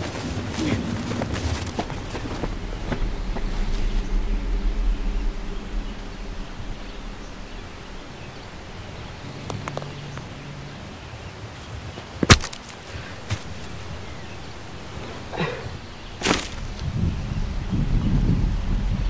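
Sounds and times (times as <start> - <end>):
sharp crack: 12.2 - 16.9.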